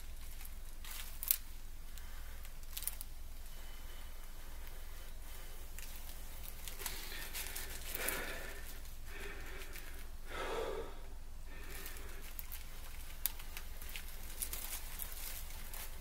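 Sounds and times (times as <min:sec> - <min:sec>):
person blowing long breaths: 0:06.8 - 0:12.4.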